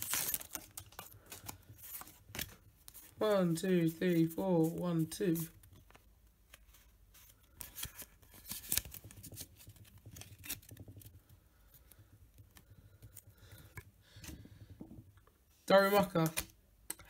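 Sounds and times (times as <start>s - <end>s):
trading cards clicking and snapping: 7.6s - 11.1s.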